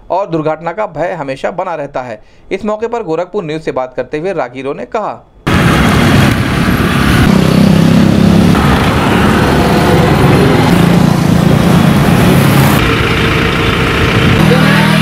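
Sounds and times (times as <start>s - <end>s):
road traffic noise: 5.4s - 15.0s
motorcycle engines passing: 5.5s - 15.0s.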